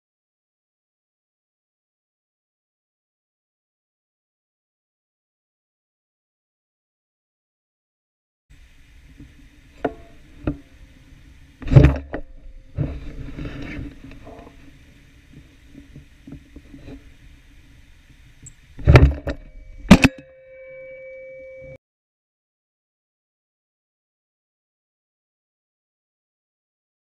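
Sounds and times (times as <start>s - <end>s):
rumble and knocking of gun: 9.1s - 17.2s, 18.7s - 20.2s.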